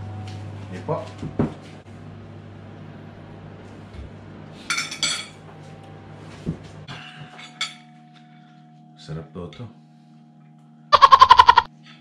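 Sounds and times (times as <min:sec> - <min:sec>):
cutlery clinking on plates: 0:04.7 - 0:05.4, 0:06.9 - 0:07.9.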